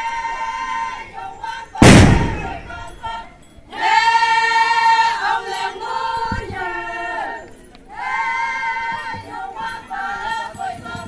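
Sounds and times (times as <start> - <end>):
women singing together: 0.0 - 11.0
dull thump: 1.8 - 2.8.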